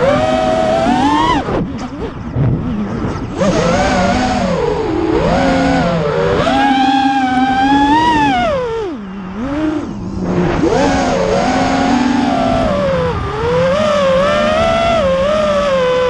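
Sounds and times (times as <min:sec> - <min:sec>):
drone motors whining: 0:00.0 - 0:16.0.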